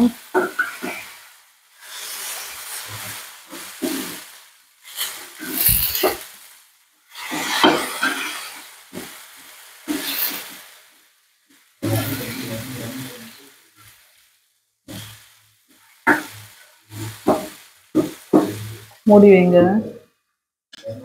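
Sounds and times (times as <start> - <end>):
oil sizzling: 0.0 - 19.9
metal spatula scraping on griddle: 1.8 - 6.5, 7.1 - 10.6, 16.1 - 18.8.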